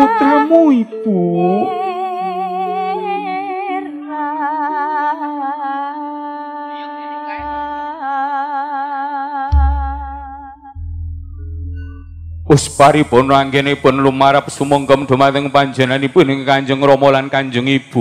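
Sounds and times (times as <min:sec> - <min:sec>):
slow melody with vibrato: 0:00.0 - 0:17.0
low thud: 0:09.6 - 0:12.5.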